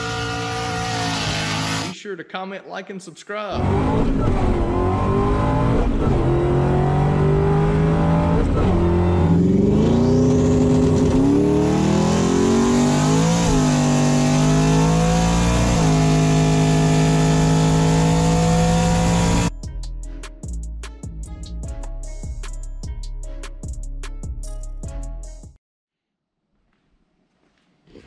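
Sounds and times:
car engine accelerating: 0.0 - 1.9, 3.6 - 19.5
supercharger whine: 0.0 - 1.9, 3.6 - 19.5.

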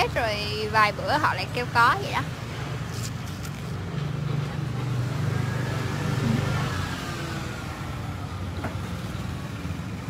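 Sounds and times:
traffic hum: 0.0 - 10.0
vehicle engine passing by: 4.1 - 8.1.

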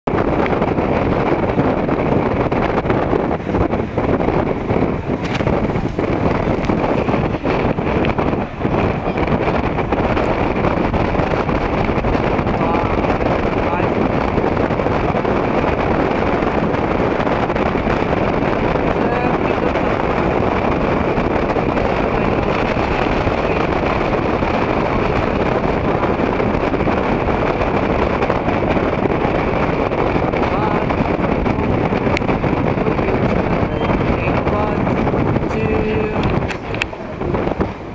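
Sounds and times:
strong wind on microphone: 0.0 - 37.9.

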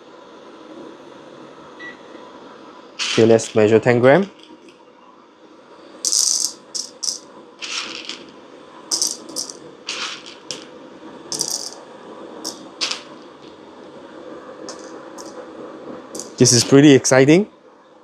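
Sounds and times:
coffee beans clattering into container: 6.1 - 10.7, 11.3 - 11.8, 12.5 - 13.5, 14.7 - 15.4, 16.2 - 16.6.

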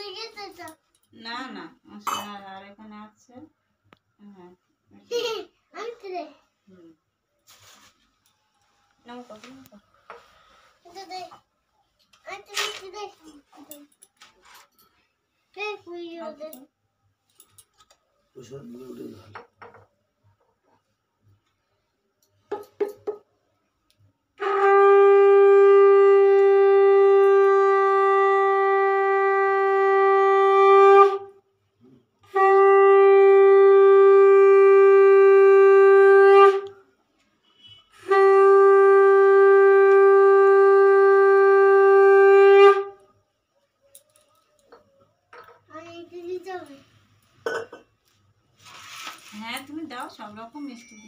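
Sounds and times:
conch shell blasts: 24.4 - 31.4, 32.2 - 36.8, 37.4 - 43.2.

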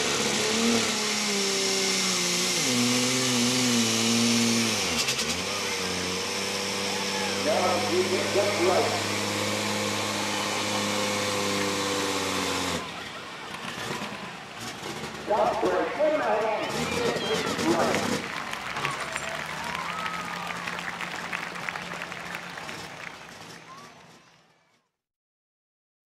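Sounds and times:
diesel tractor engine running: 0.0 - 24.7
crowd applauding: 6.4 - 24.8.

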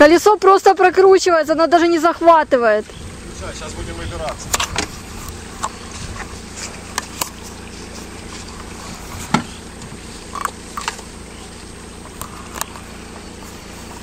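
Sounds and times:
car engine humming: 0.0 - 14.0.

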